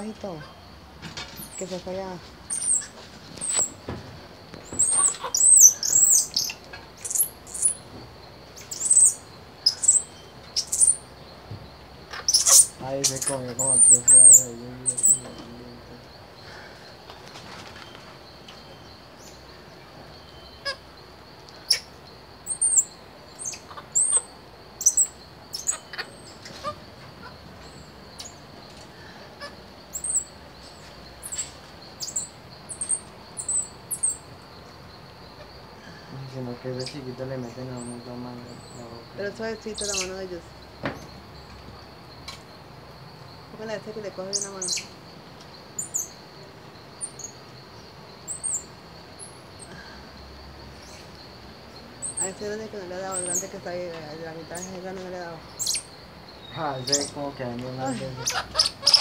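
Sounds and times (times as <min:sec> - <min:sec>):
monkeys chirping and squeaking: 0:00.0 - 0:03.8, 0:04.6 - 0:07.9, 0:08.5 - 0:11.1, 0:12.0 - 0:15.5, 0:20.2 - 0:20.9, 0:21.6 - 0:34.4, 0:39.6 - 0:40.2, 0:44.2 - 0:44.9, 0:52.0 - 0:52.5, 0:53.1 - 0:53.6, 0:55.4 - 0:57.2, 0:57.8 - 0:59.0
high insect drone: 0:00.0 - 0:59.0.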